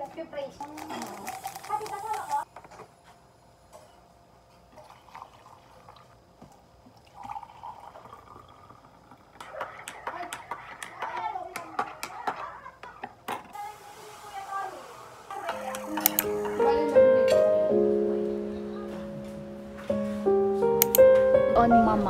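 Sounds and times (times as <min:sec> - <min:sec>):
indistinct voices: 0:09.5 - 0:19.7.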